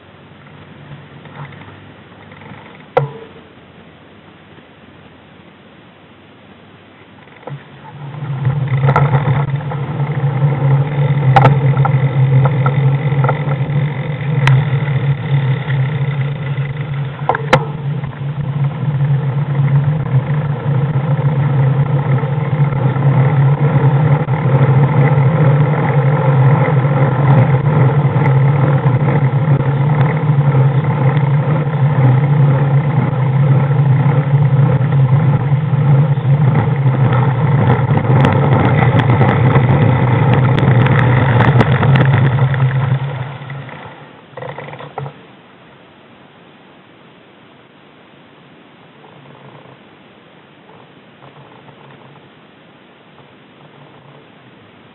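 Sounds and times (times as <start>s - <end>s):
vehicle engine humming: 0.0s - 46.1s, 47.3s - 54.9s.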